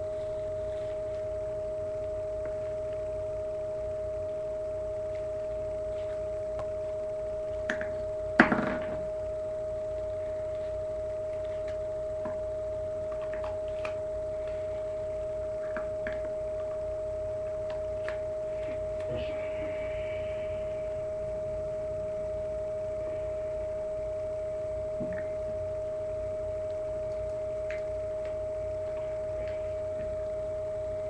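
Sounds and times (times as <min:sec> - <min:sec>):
steady two-tone electronic whine: 0:00.0 - 0:31.0.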